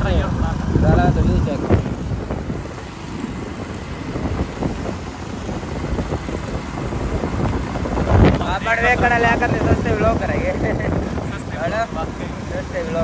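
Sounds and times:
motorbike road rumble: 0.0 - 13.0
wind on microphone: 0.0 - 13.0.

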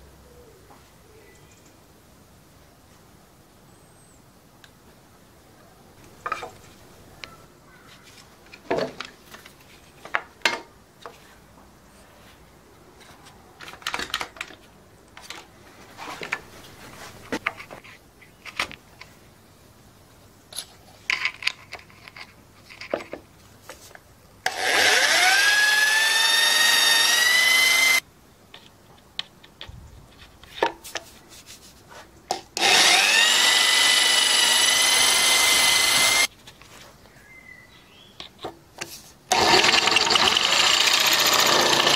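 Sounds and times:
cordless drill drilling: 24.5 - 28.0, 32.6 - 36.3, 39.3 - 41.9.

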